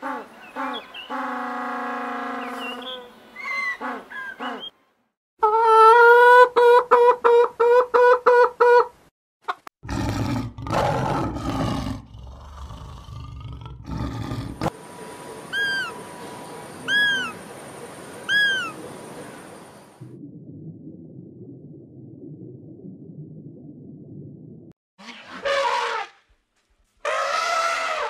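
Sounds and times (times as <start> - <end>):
hen cackling: 5.4 - 9.7, 16.9 - 17.4, 18.3 - 18.8
lion roaring: 9.8 - 14.7
short arched calls: 15.5 - 16.0.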